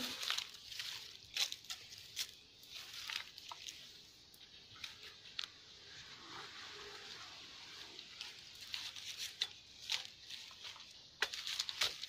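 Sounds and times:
dry leaves rustling underfoot: 0.0s - 12.0s.

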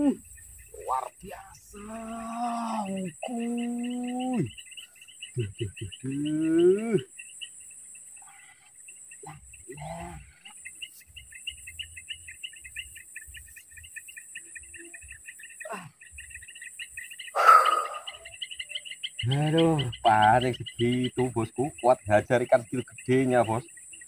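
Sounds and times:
insects chirping in trills: 0.0s - 24.0s
high-pitched hiss: 16.8s - 18.4s.

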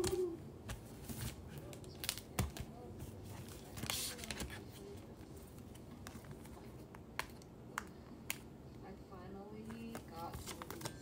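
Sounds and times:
paper rustling: 0.0s - 7.3s, 9.7s - 11.0s.

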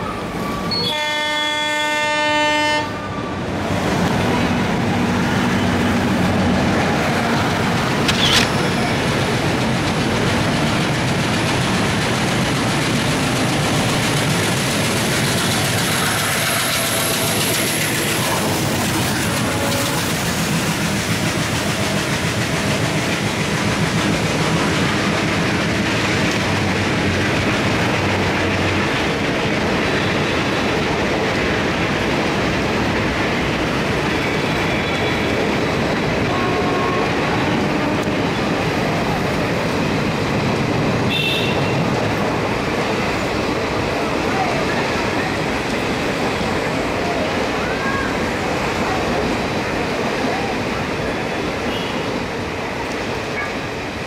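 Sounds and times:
train rolling noise: 0.0s - 54.0s
train horn: 0.7s - 3.1s, 19.1s - 20.1s, 36.3s - 38.2s, 41.1s - 41.8s
clickety-clack of train wheels: 3.7s - 54.0s.

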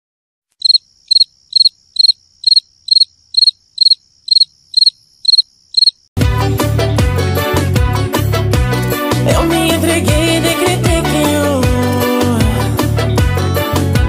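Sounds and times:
cricket chirping: 0.6s - 6.1s.

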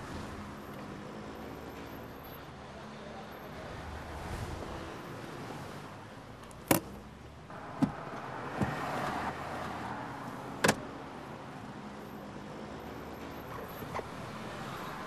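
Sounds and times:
car cabin noise: 6.4s - 9.8s, 10.5s - 11.0s, 13.2s - 15.0s.

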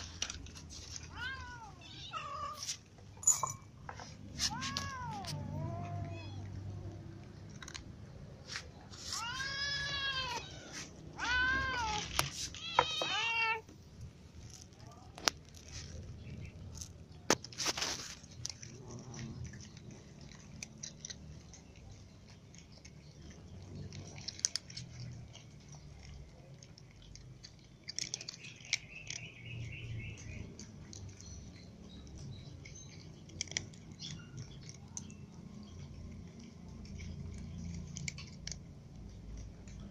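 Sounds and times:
cats crunching dry kibble: 0.0s - 39.9s
cat meowing: 1.0s - 2.7s, 4.4s - 6.6s, 9.0s - 13.7s.

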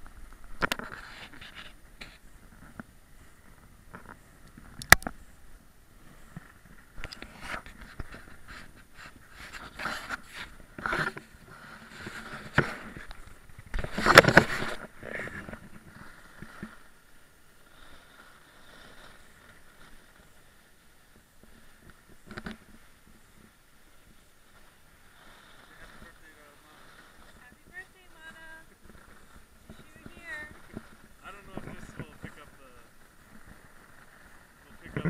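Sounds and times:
faint steady hiss: 0.0s - 35.0s
camera handling scrapes and knocks: 0.6s - 2.9s, 7.0s - 16.8s.

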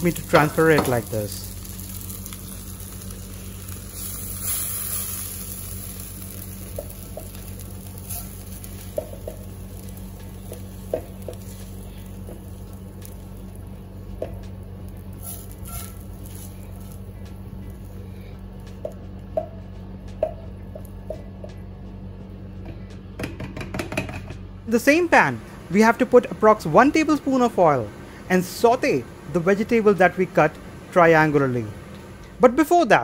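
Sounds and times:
soft sizzling hiss: 0.0s - 19.0s.

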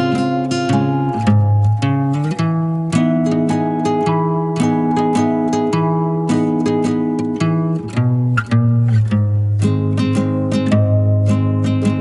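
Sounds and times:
guitar strumming chords: 0.0s - 12.0s.

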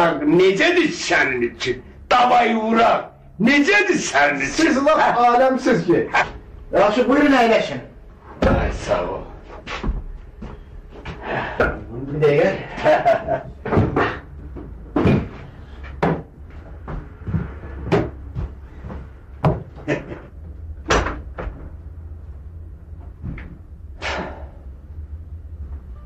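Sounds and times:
steady low hum: 0.0s - 26.0s
cupboard knocks and clunks: 13.6s - 15.4s, 16.0s - 16.3s.

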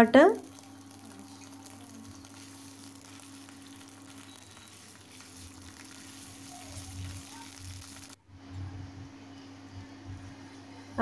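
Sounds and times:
spices sizzling in hot oil: 0.0s - 8.2s
steady low hum: 0.0s - 11.0s.

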